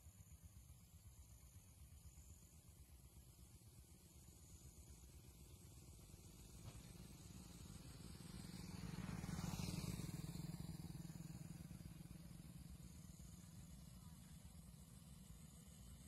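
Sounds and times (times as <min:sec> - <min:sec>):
vehicle passing: 0:07.0 - 0:13.8.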